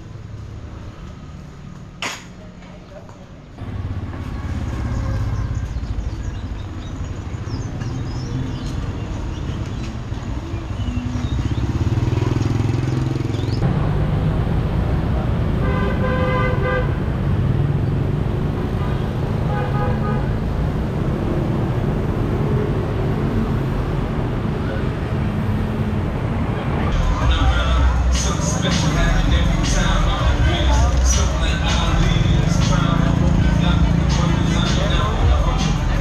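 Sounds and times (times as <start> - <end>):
city street traffic: 0.0 - 36.0
vehicle horn honking: 15.6 - 17.0, 19.5 - 20.3.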